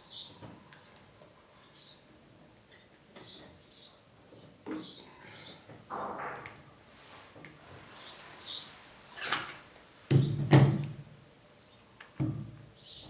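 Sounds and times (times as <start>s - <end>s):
handling brush of movement: 6.6s - 10.0s.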